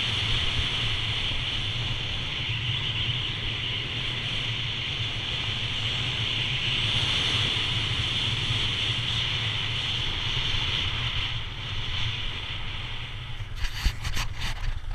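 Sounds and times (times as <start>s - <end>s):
wind on microphone: 0.0s - 14.9s
skis sliding over snow: 13.4s - 14.9s.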